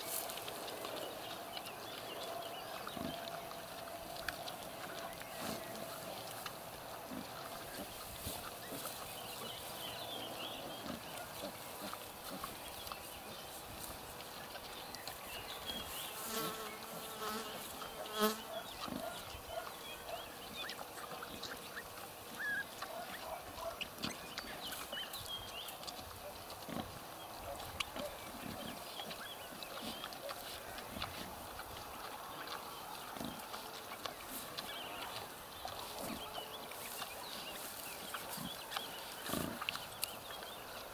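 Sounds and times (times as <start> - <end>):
pigs grunting: 0.0 - 13.4, 17.8 - 25.0, 25.8 - 40.9
piglets squeaking: 21.5 - 24.2.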